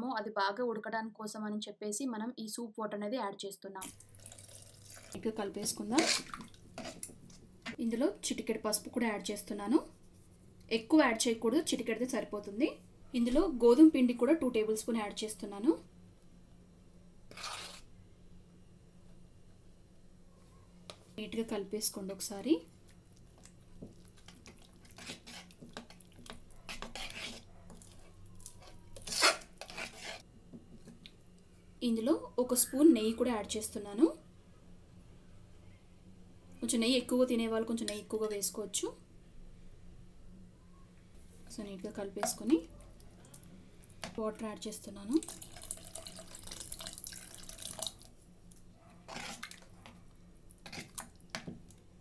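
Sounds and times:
water pouring into a pot: 0:03.8 - 0:05.2, 0:45.2 - 0:48.2
spoon stirring thick mixture: 0:04.2 - 0:07.8, 0:17.3 - 0:17.9, 0:22.8 - 0:31.2, 0:41.4 - 0:44.2, 0:45.2 - 0:51.8
metal spoon scraping a pot: 0:05.7 - 0:07.1, 0:17.3 - 0:17.9, 0:24.9 - 0:30.2, 0:49.1 - 0:49.6, 0:50.6 - 0:51.1.

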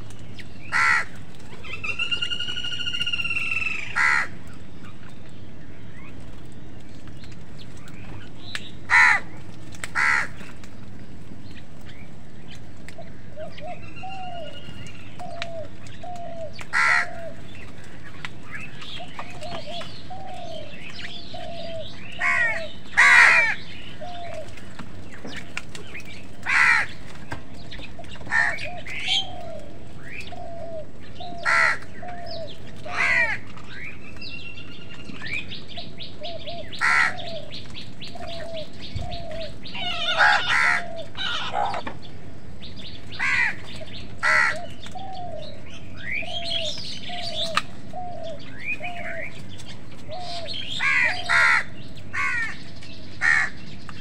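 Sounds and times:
crows cawing: 0:00.6 - 0:04.5, 0:08.9 - 0:10.6, 0:15.2 - 0:20.7, 0:21.4 - 0:24.8, 0:26.4 - 0:27.1, 0:28.1 - 0:33.6, 0:36.2 - 0:42.0, 0:43.1 - 0:45.4, 0:50.1 - 0:53.7.

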